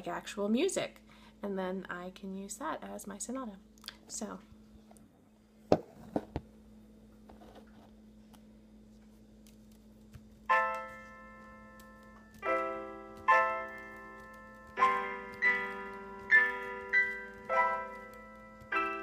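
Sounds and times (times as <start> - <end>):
piano chords ringing: 10.4 - 19.0.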